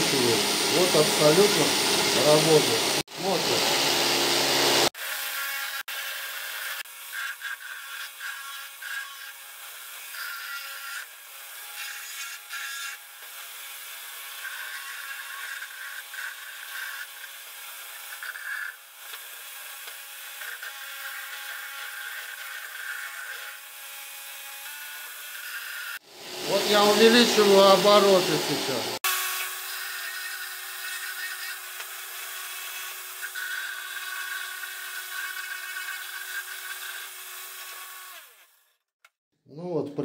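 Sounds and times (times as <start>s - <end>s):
grinder motor whine: 0.0s - 5.0s, 25.0s - 32.2s
rotary burr rasping into wood: 29.4s - 38.2s.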